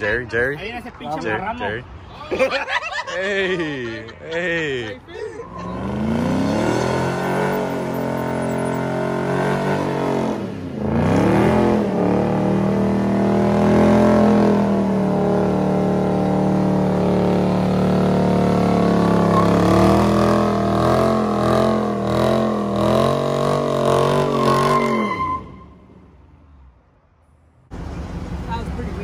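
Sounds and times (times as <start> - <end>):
car engine revving high: 5.5 - 25.3.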